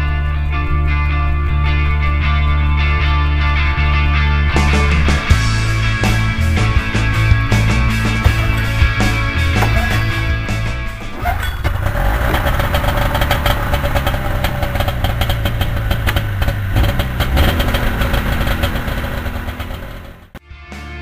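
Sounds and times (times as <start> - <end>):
snowmobile engine idling: 5.5 - 20.4.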